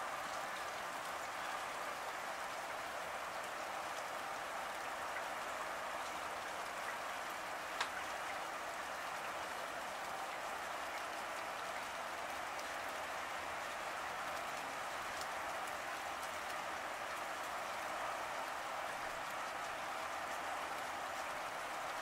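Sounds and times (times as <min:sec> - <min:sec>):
steady rain: 0:00.0 - 0:22.0
raindrop ticks: 0:06.4 - 0:08.4, 0:14.2 - 0:17.9.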